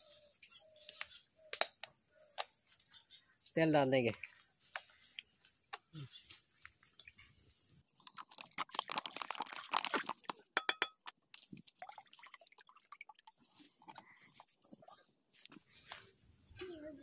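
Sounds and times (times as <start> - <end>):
oil crackling and popping: 7.9 - 14.5.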